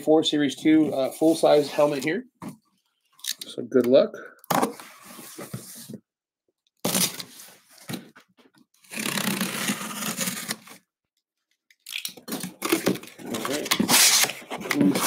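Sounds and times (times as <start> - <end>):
knife slicing packing tape: 8.8 - 10.8.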